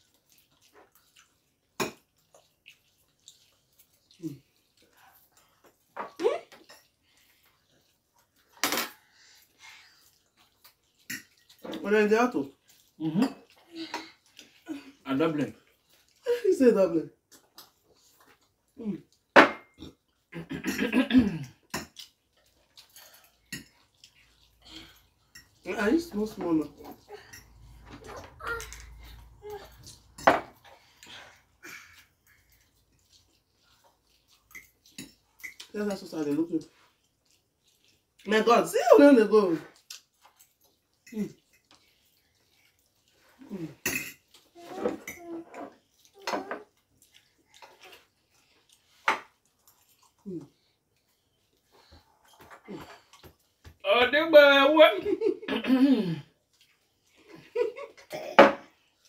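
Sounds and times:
slurping and chewing spaghetti: 0:00.0 - 0:16.4, 0:17.1 - 0:53.8, 0:56.0 - 0:59.0
forks clinking and scraping on plates: 0:11.0 - 0:11.8, 0:22.8 - 0:24.1, 0:34.5 - 0:35.7, 0:43.7 - 0:46.7.

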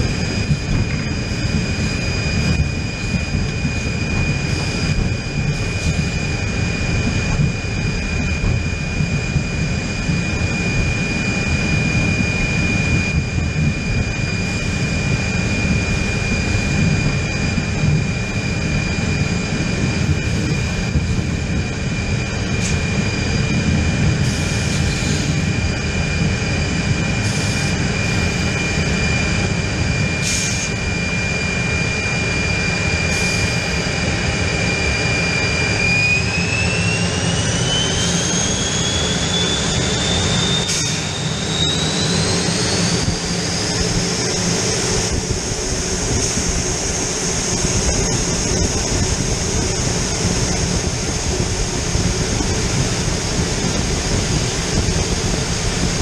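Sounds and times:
low engine rumble: 0:00.0 - 0:30.0
jet engine whine: 0:00.0 - 0:56.0.

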